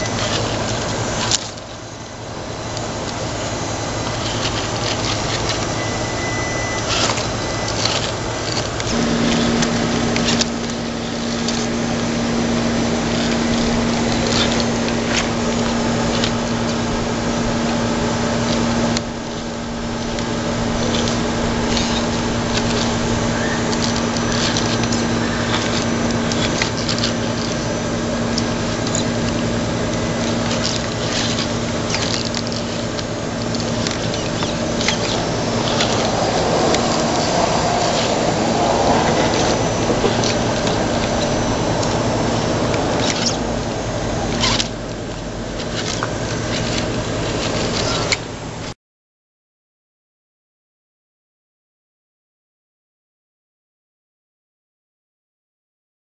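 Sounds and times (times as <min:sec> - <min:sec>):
electric motor whine: 0:00.0 - 0:48.7.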